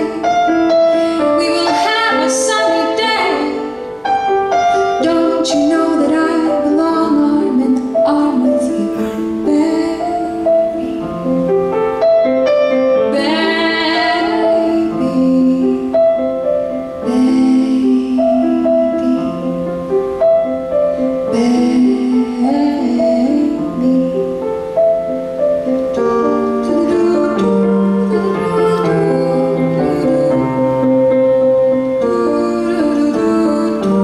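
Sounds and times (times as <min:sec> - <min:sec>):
woman singing: 0:00.0 - 0:11.5, 0:12.3 - 0:34.0
grand piano: 0:00.0 - 0:34.0.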